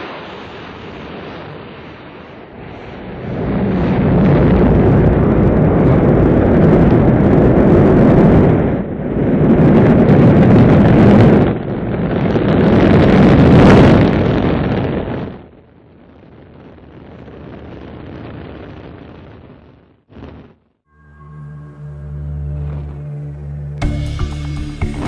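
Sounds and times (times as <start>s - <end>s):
rocket engine rumble: 0.0s - 25.0s.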